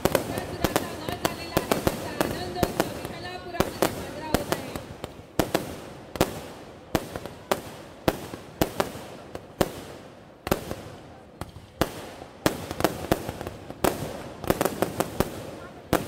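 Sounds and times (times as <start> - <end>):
firecrackers banging: 0.0 - 16.0.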